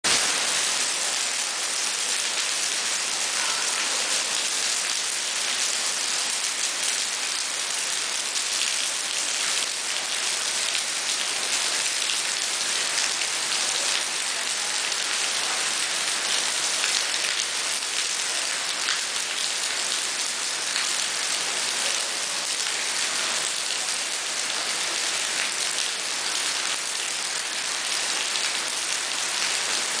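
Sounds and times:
rain pattering on paving: 0.1s - 30.0s.

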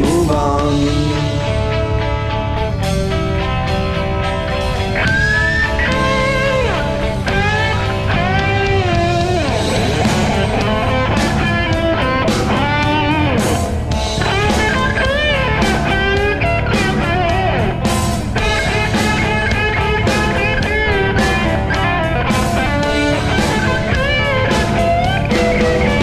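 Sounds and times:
bass guitar: 0.0s - 26.0s
electric lead guitar bending notes: 0.0s - 26.0s
steady drum beat: 4.8s - 26.0s.

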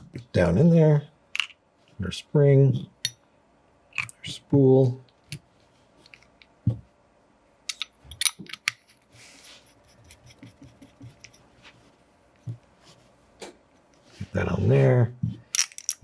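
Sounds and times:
small metal parts clicking: 7.7s - 9.0s, 15.5s - 16.0s
metal parts scraping: 15.5s - 16.0s.

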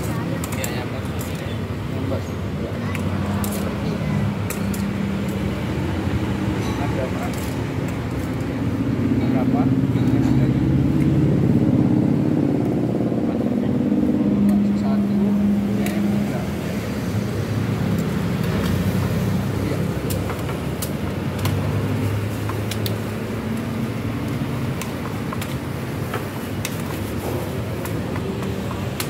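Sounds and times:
road traffic rumble: 0.0s - 29.0s
water boiling: 17.3s - 29.0s.

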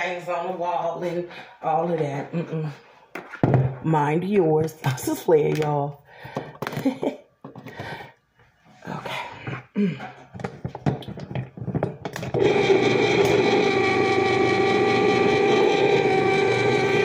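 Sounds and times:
clicks and knocks of handling: 9.5s - 12.2s
can opener motor whirring: 12.1s - 17.0s.

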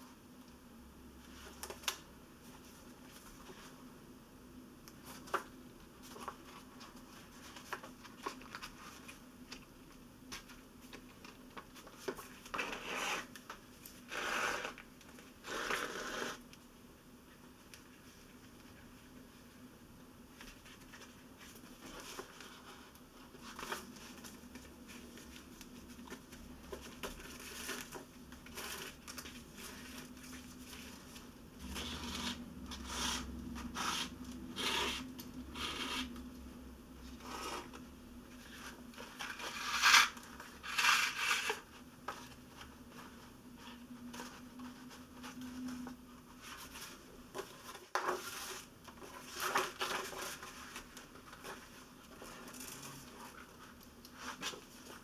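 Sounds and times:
paper rustling: 20.3s - 33.2s.

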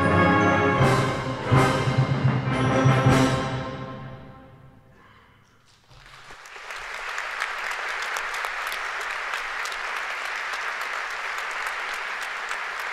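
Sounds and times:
audience applause: 5.7s - 12.9s.

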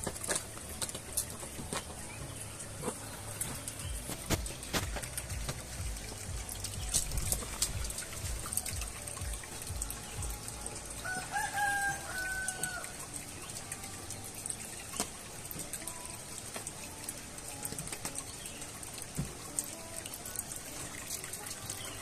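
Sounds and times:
rooster crowing: 11.0s - 13.0s.

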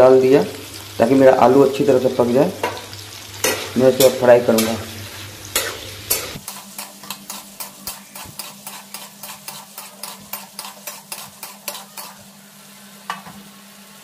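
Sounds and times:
potatoes sizzling in oil: 0.0s - 14.0s
spatula scraping and knocking pan: 3.4s - 4.8s, 5.5s - 12.2s.

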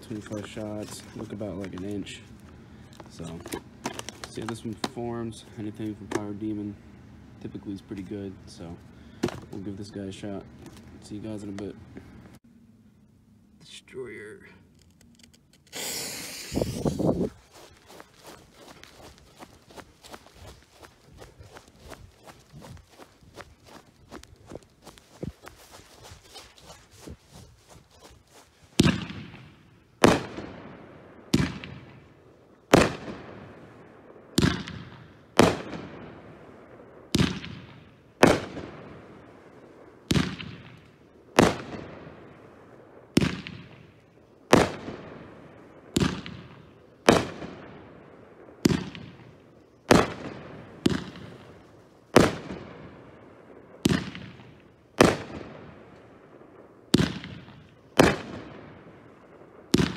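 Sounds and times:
firework bangs: 28.7s - 32.0s, 32.7s - 39.2s, 40.1s - 42.3s, 43.0s - 47.9s, 48.5s - 55.9s, 56.9s - 59.9s.

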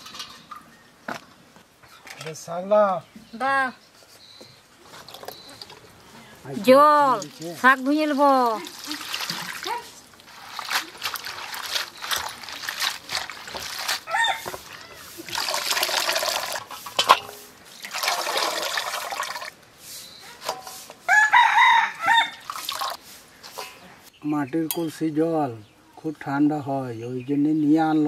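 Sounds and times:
water splashing in a bowl: 7.1s - 19.6s, 22.3s - 23.0s
rooster crowing: 14.1s - 15.0s, 21.1s - 22.5s.

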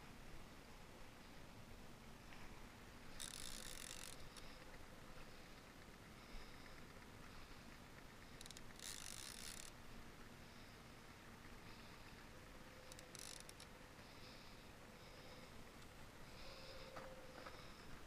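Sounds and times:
fishing reel drag buzzing: 3.1s - 5.6s, 6.3s - 9.8s, 11.7s - 15.5s.

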